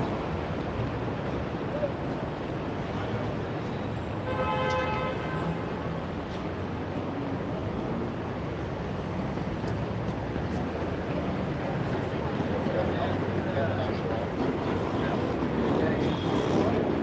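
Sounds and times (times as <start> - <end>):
city street traffic: 0.0 - 17.0
vehicle horn: 4.2 - 5.6.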